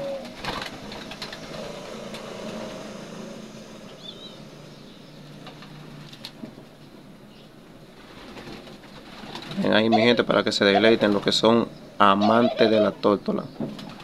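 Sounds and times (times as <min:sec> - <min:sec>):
engine humming: 0:00.0 - 0:14.0
small bird chirp: 0:03.9 - 0:05.5.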